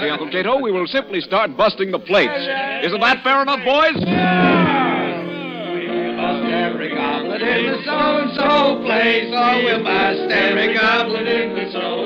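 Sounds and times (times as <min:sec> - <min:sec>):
men singing together: 0:04.3 - 0:12.0.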